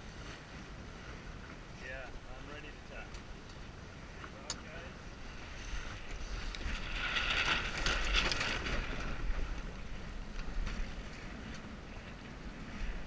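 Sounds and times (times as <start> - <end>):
water rushing along boat hull: 0.0 - 13.0
wind buffeting microphone: 4.9 - 13.0.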